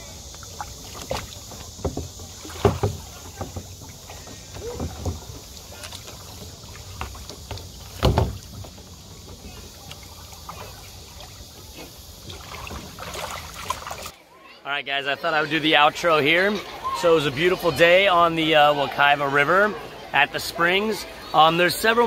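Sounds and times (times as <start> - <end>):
steady high hiss: 0.0 - 14.1
hollow knocks of plastic kayak: 0.9 - 10.0.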